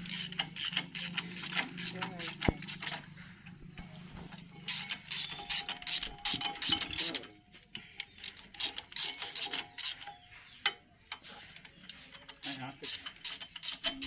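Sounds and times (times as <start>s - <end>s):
ratchet wrench clicking: 0.0s - 3.0s, 4.7s - 7.1s, 8.1s - 10.0s, 12.3s - 14.0s.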